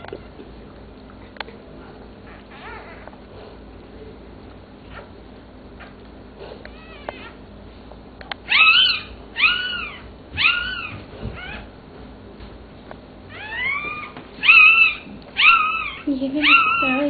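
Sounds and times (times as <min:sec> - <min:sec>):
faint puppy squeaks: 0:02.2 - 0:03.1, 0:08.5 - 0:11.7, 0:13.3 - 0:17.0
puppy squealing: 0:02.3 - 0:03.2, 0:06.7 - 0:07.4, 0:08.5 - 0:11.7, 0:13.3 - 0:17.0.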